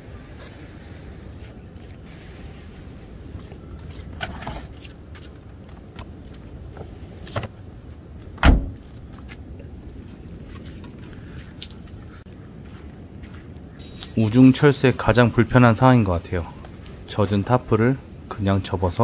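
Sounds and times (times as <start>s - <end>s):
low background noise: 0.0s - 19.0s
loud thud: 8.4s - 8.8s.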